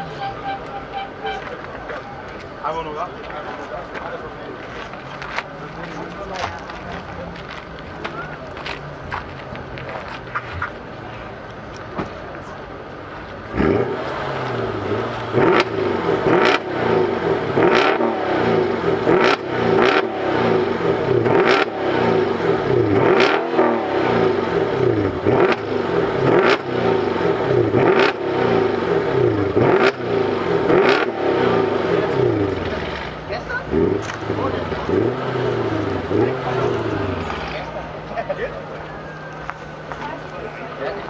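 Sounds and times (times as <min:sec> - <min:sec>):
car engine revving: 0:13.0 - 0:41.0
exhaust cracks: 0:13.2 - 0:38.3.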